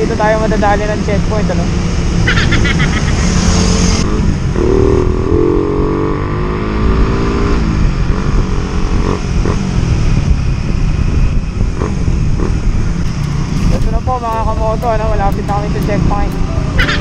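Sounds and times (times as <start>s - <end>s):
road noise: 0.0s - 17.0s
wind buffeting microphone: 0.0s - 17.0s
motorcycle engine running: 7.7s - 17.0s.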